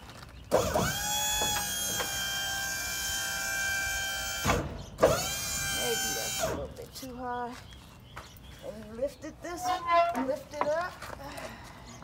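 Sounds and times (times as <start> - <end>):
hydraulic pump motor whine: 0.5 - 6.6.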